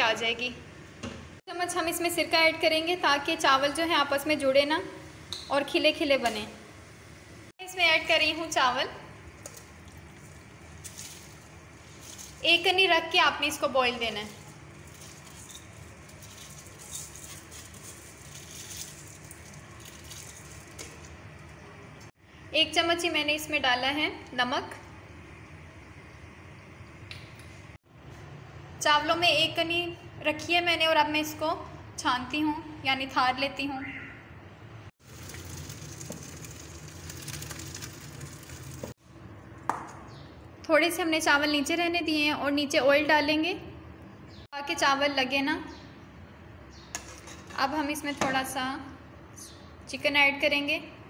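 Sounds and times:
rice pattering into water: 14.3s - 21.3s, 35.0s - 39.0s
water rushing while draining: 35.0s - 38.9s.

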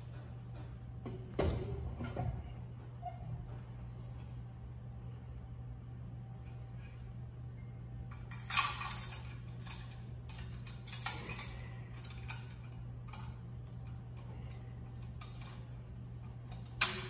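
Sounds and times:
steady low hum: 0.0s - 17.0s
metal clinks and clanks: 8.1s - 13.9s.

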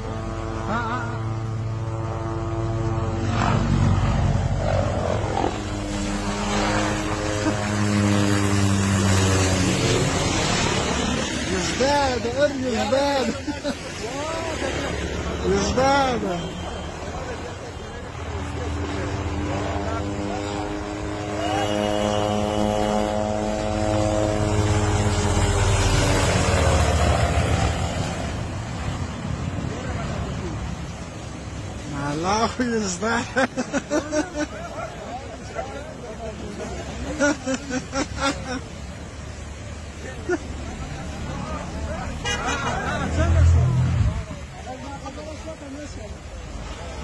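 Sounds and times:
helicopter flying overhead: 0.0s - 43.4s
helicopter engine drone: 3.2s - 11.5s, 16.6s - 28.6s.

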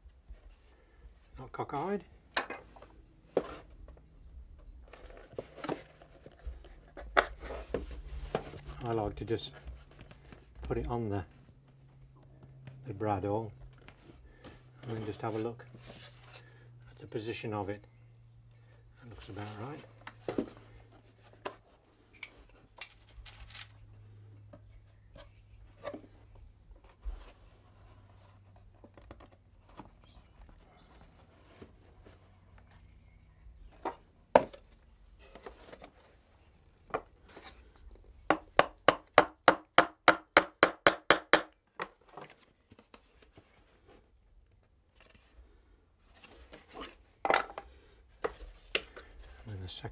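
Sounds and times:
hammer tapping nail into wood: 38.3s - 41.5s.

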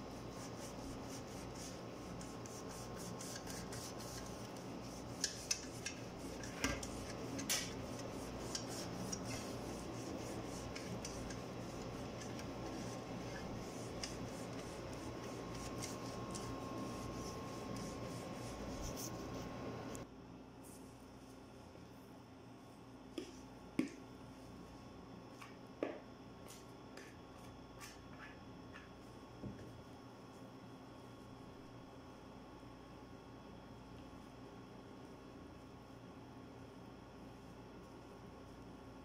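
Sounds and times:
pastry brush swishing on metal pan: 0.0s - 20.0s.

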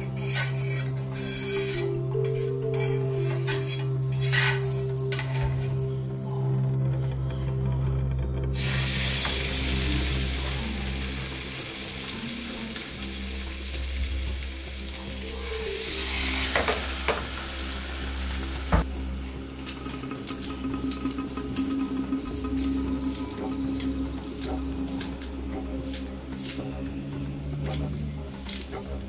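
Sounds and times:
stirring and scraping in pan: 0.0s - 6.2s
fish sizzling in hot oil: 3.0s - 6.4s, 8.5s - 18.8s.

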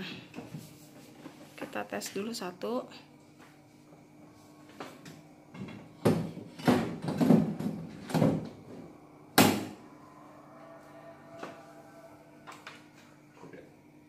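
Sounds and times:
cabinet knocking against wall: 5.6s - 8.5s.

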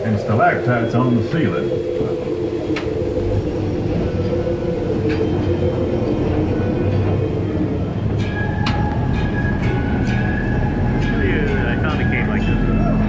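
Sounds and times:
thin steady high tone: 0.0s - 7.0s
ride train rumbling on track: 0.0s - 13.0s.

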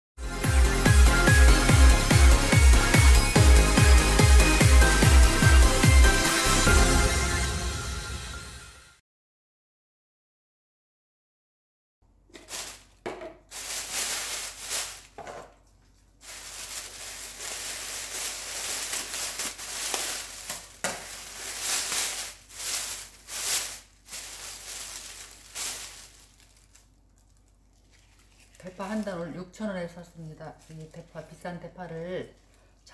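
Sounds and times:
plastic bag crinkling and rustling: 12.3s - 32.5s.

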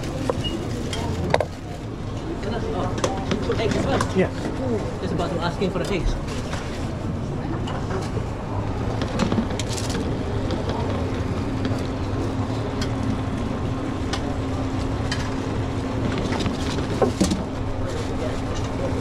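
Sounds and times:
utensils and dishes clinking: 0.0s - 2.3s.

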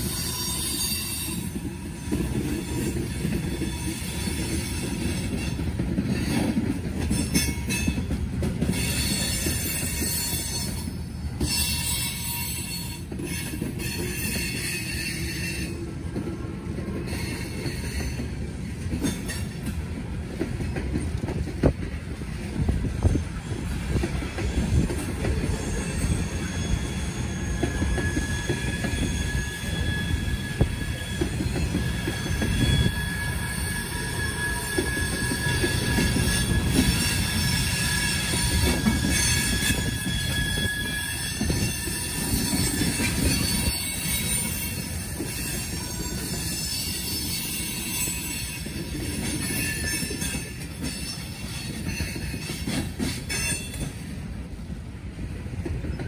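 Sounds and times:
wheel flanges squealing: 22.9s - 54.1s.

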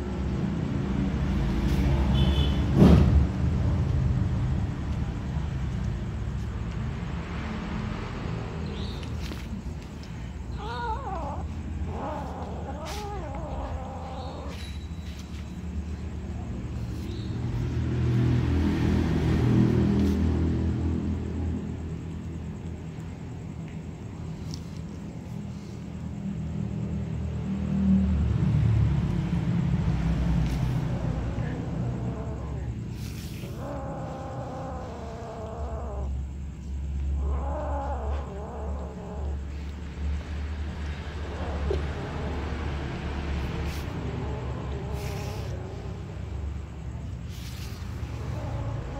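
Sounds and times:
kitten meowing: 10.5s - 15.0s.

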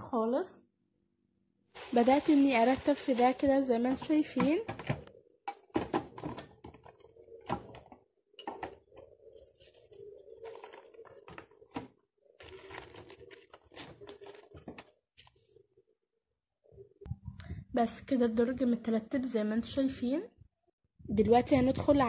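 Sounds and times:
stationery knocking and clicking: 4.0s - 9.1s.

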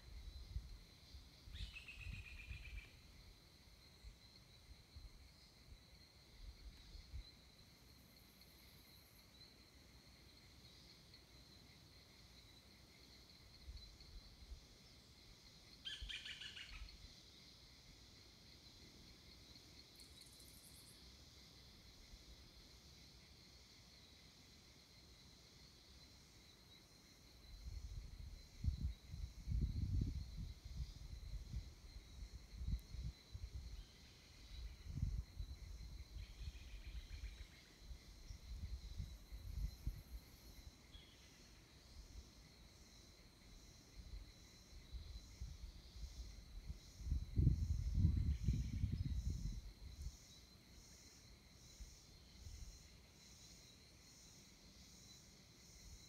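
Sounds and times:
insects droning: 0.0s - 56.0s
faint bird chirps: 1.5s - 3.1s, 15.7s - 17.1s, 19.9s - 21.1s, 33.7s - 39.7s, 40.9s - 41.7s.

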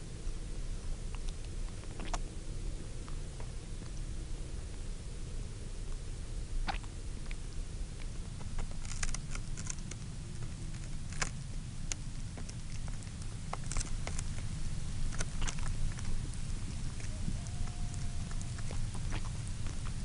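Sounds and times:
steady low rumble: 0.0s - 20.0s
porcupine crunching berries: 1.0s - 2.3s, 6.6s - 20.0s.

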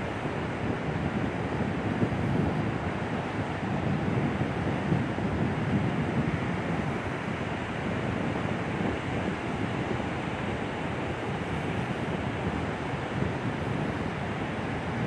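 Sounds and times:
wind blowing across microphone: 0.0s - 15.0s.

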